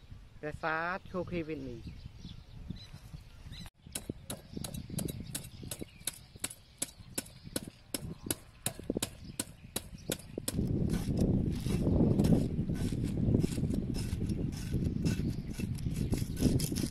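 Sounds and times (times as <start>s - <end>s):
knife scraping fish scales: 10.9s - 16.9s.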